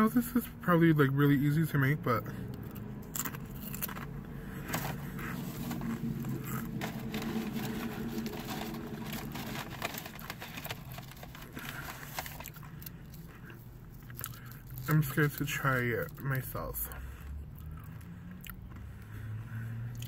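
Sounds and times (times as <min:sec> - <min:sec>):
car engine idling: 0:00.2 - 0:20.0
chewing and mouth clicks: 0:12.4 - 0:15.1, 0:16.9 - 0:19.0.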